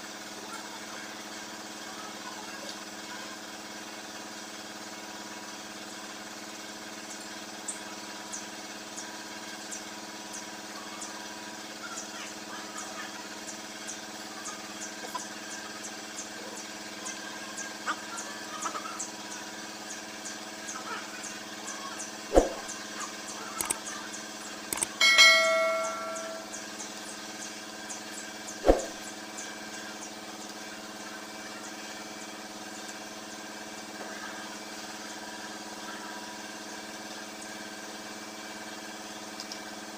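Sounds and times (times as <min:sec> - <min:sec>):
machine hum: 0:19.2 - 0:35.3
ringing metal clang: 0:25.0 - 0:26.5.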